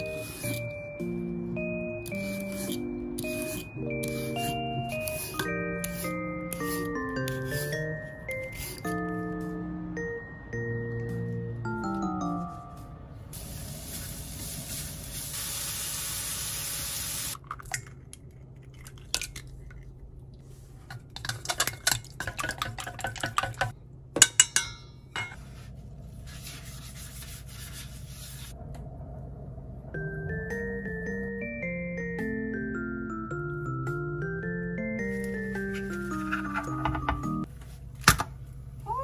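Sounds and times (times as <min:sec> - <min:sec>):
utensils clinking on steel bowl: 0:20.9 - 0:25.4.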